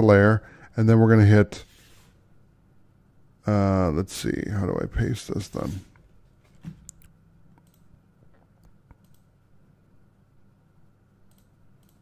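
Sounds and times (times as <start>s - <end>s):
low steady hum: 0.0s - 12.0s
computer mouse clicks: 6.8s - 9.3s, 11.3s - 12.0s.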